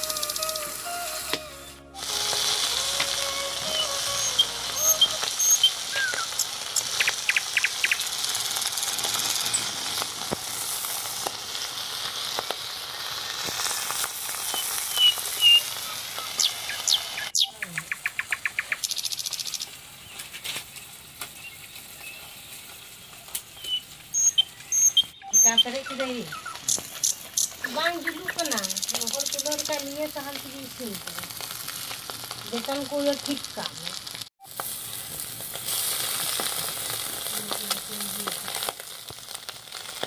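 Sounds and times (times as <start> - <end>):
fish sizzling in hot oil: 2.0 - 17.4, 18.3 - 40.0
birds chirping: 3.3 - 8.2, 14.5 - 30.4.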